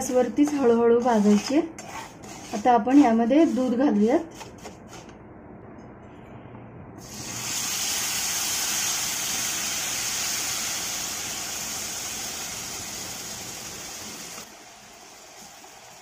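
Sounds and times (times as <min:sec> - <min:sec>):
milk sizzling in hot pan: 0:07.0 - 0:16.0.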